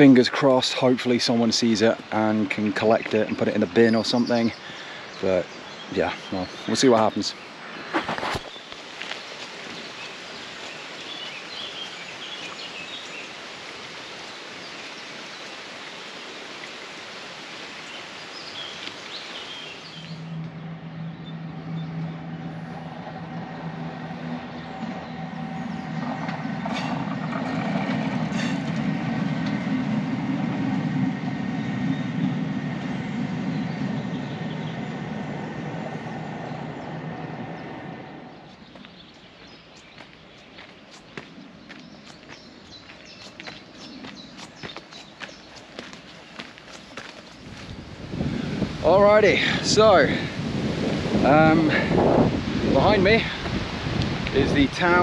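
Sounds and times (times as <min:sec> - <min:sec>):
passing vehicle hum and whine: 0:18.2 - 0:40.4, 0:47.4 - 0:55.0.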